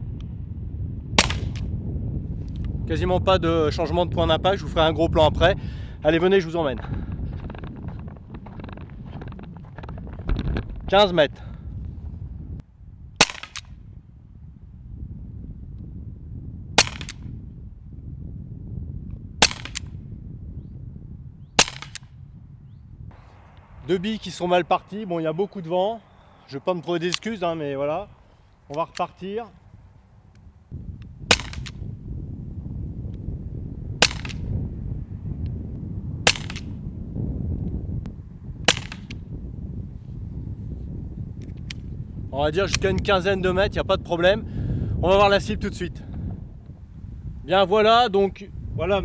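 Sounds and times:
wind rumble on microphone: 0.0s - 49.0s
paintball pistol shots: 1.2s - 1.7s, 13.2s - 13.8s, 16.8s - 17.3s, 19.4s - 20.0s, 21.6s - 22.1s, 27.1s - 27.3s, 31.2s - 31.9s, 34.0s - 34.5s, 36.2s - 36.8s, 38.6s - 39.2s.

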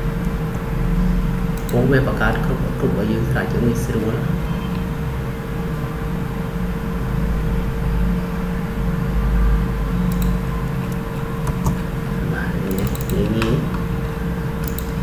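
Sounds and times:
steady low hum: 0.0s - 15.0s
sharp clicks: 1.5s - 1.8s, 10.1s - 11.8s, 12.7s - 13.8s, 14.6s - 15.0s.

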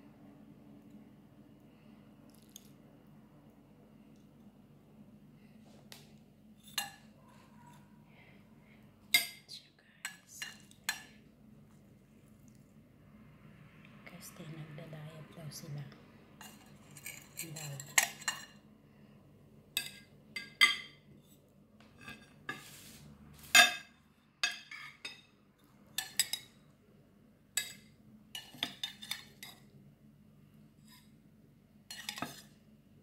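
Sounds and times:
cutlery clinking on ceramic plates: 16.4s - 18.6s, 19.8s - 21.0s, 23.5s - 25.4s, 27.6s - 29.6s, 31.9s - 32.5s
cutlery scraping plate: 16.4s - 18.6s, 19.8s - 25.3s, 28.4s - 29.6s, 31.9s - 32.6s.

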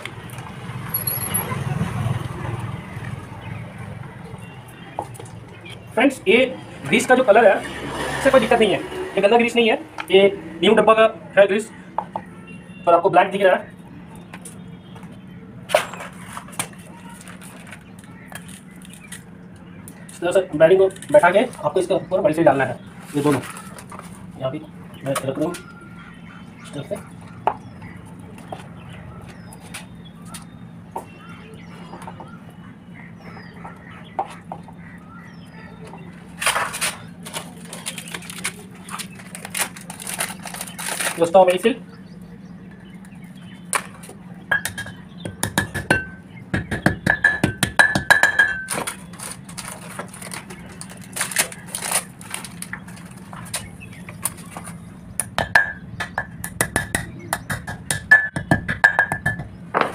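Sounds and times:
chickens clucking: 31.6s - 36.4s
plastic packet crinkling: 37.2s - 41.3s, 48.9s - 53.2s.

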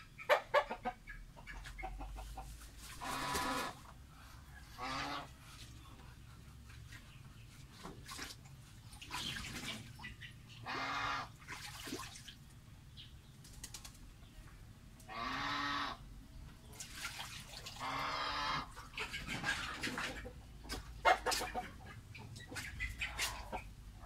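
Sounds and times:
goose honking: 3.0s - 3.8s, 4.7s - 5.4s, 10.6s - 11.3s, 15.1s - 16.0s, 17.8s - 18.7s.

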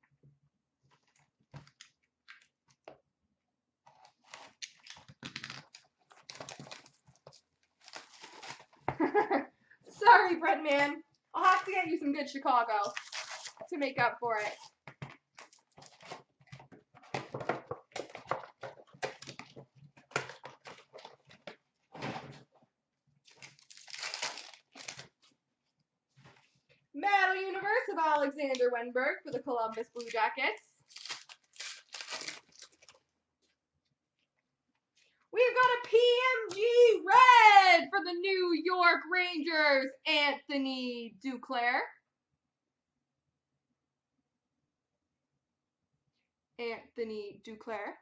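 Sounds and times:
shrink wrap crinkling and tearing: 3.9s - 9.3s, 12.7s - 16.6s, 23.2s - 25.4s, 29.7s - 33.1s.

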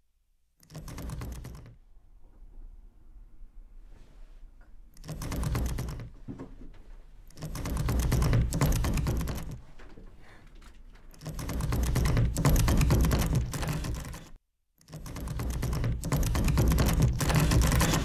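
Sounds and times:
rapid mechanical clicking: 0.6s - 1.8s, 5.0s - 6.1s, 7.3s - 9.6s, 11.1s - 18.0s.

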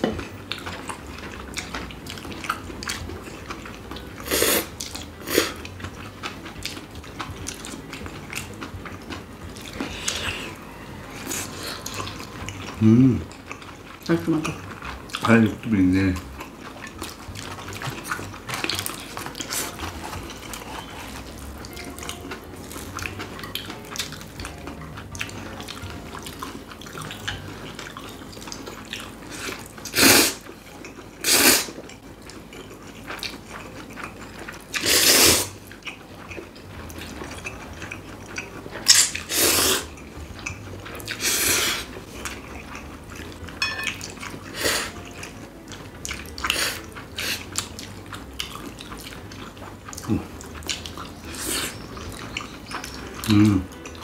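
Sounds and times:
wet chewing and lip smacking: 0.0s - 54.0s
people slurping noodles: 4.2s - 5.6s, 29.2s - 30.4s, 31.2s - 31.8s, 34.7s - 35.6s, 38.9s - 39.9s, 41.1s - 42.2s, 46.4s - 47.6s, 51.2s - 51.9s.

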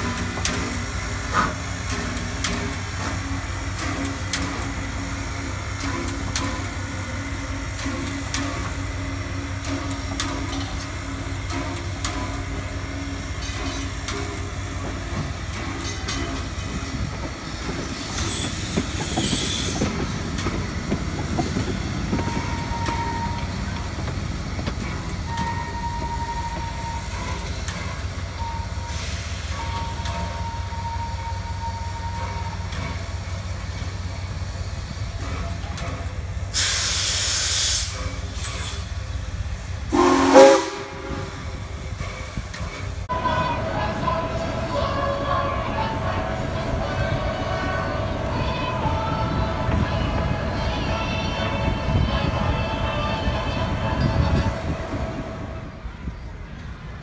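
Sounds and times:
steam hissing: 0.0s - 43.1s
steam locomotive low rumble: 0.0s - 57.0s.

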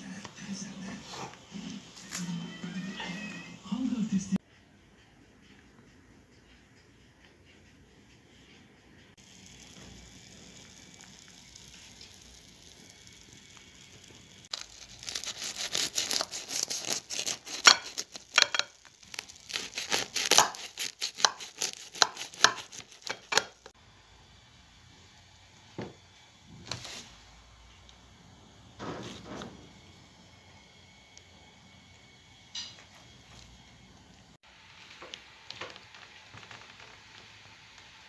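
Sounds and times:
knife crunching crisp pastry: 14.5s - 23.7s.

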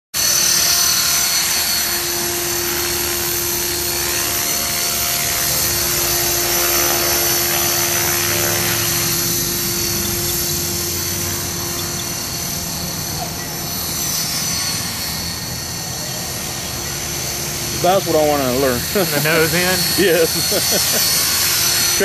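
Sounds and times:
high-pitched motor whine: 0.2s - 22.0s
rotor blades whirring: 0.2s - 22.0s.

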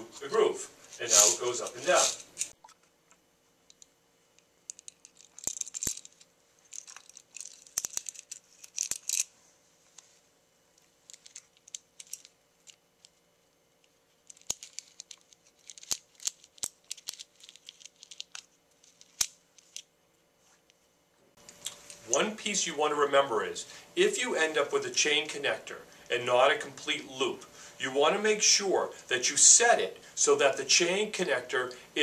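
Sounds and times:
ball chain clicking and rattling: 4.7s - 9.3s.

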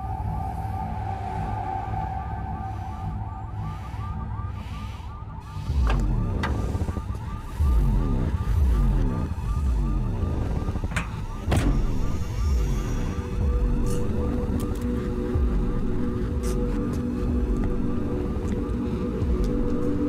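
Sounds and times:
low rumbling: 0.0s - 20.0s
electronic alarm warbling: 0.1s - 14.4s.

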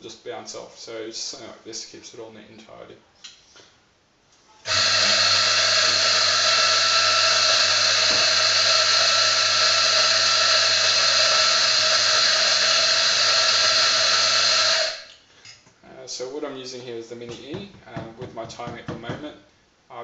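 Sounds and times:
coffee grinder motor hum: 4.7s - 15.1s.

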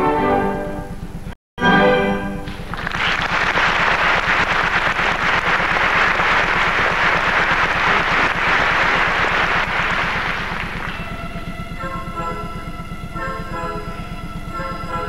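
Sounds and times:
orchestra playing: 1.6s - 2.6s, 9.7s - 15.0s
audience applauding: 2.4s - 11.3s
low steady hum: 2.4s - 15.0s.

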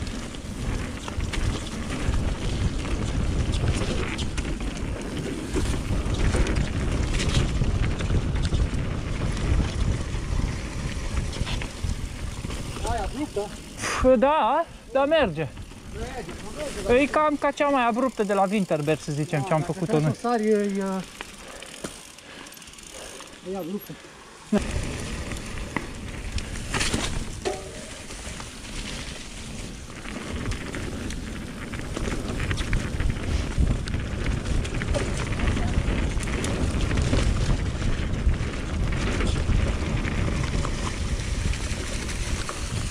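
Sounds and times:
wind on microphone: 0.0s - 13.3s, 29.1s - 42.9s
bike rattles and knocks: 0.0s - 13.8s, 15.6s - 23.8s, 24.5s - 42.9s
mountain bike rolling on dirt: 0.0s - 42.9s.

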